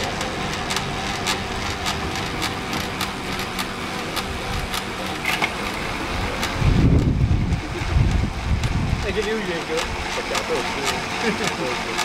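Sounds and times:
bike trainer hum with whine: 0:00.0 - 0:12.0.

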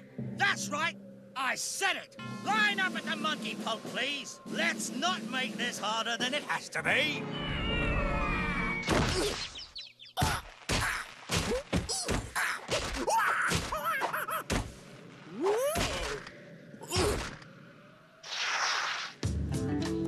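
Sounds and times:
cartoon whacks and thuds: 0:08.8 - 0:09.6, 0:10.2 - 0:13.9, 0:14.5 - 0:14.8, 0:15.7 - 0:16.3, 0:17.0 - 0:17.4.

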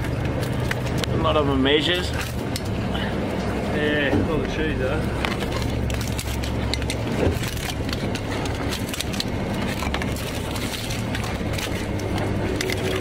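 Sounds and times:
boat engine humming: 0:00.0 - 0:13.0
lobster shells scraping wire mesh: 0:05.1 - 0:13.0.

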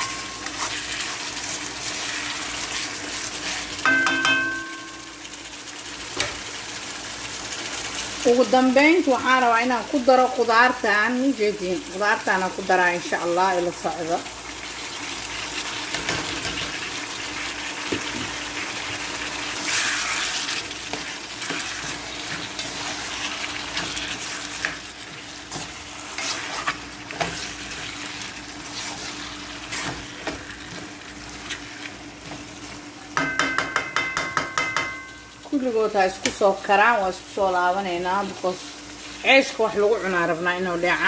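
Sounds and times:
food sizzling in a wok: 0:00.0 - 0:41.0
utensil scraping pan: 0:19.6 - 0:31.6.

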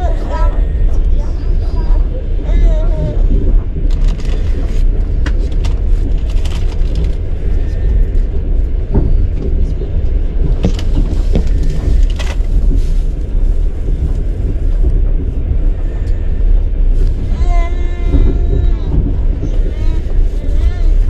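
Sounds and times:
train rumbling: 0:00.0 - 0:21.0.

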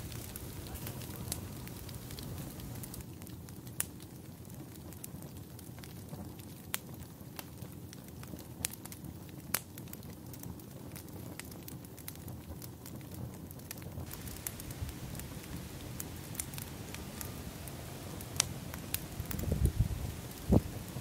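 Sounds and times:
wood and brush crackling: 0:00.0 - 0:03.0, 0:14.1 - 0:21.0
low steady rush: 0:14.1 - 0:21.0.

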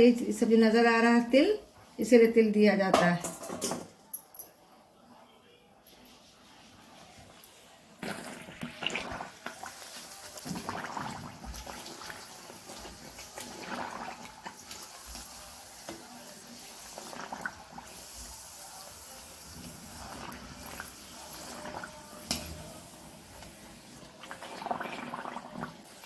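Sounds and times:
oil sizzling and crackling: 0:08.0 - 0:26.0.

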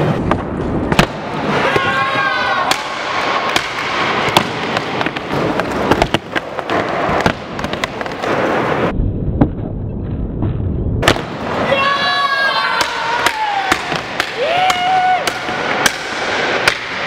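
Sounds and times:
skateboard wheels rumbling: 0:03.2 - 0:08.9.

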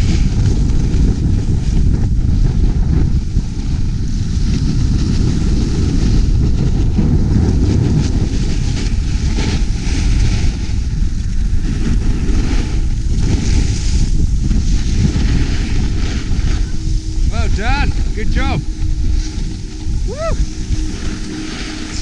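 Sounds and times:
wind buffeting microphone: 0:00.0 - 0:22.0
skis scraping on packed snow: 0:07.2 - 0:22.0.

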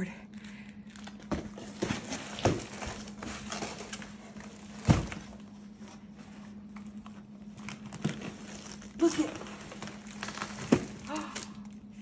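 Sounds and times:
faint steady hum: 0:00.0 - 0:12.0
cardboard box knocks and rustling: 0:04.8 - 0:05.4.

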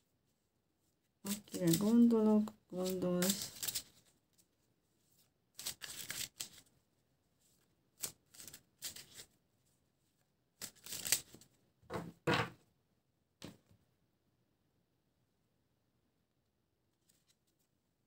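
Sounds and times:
cards being shuffled: 0:01.3 - 0:04.5, 0:05.2 - 0:06.7, 0:07.6 - 0:09.4, 0:10.6 - 0:11.6.

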